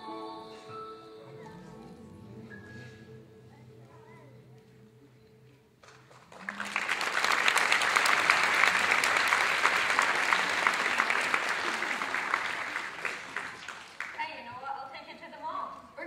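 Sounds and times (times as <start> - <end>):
music: 0.0 - 6.8
audience applause: 5.8 - 14.2.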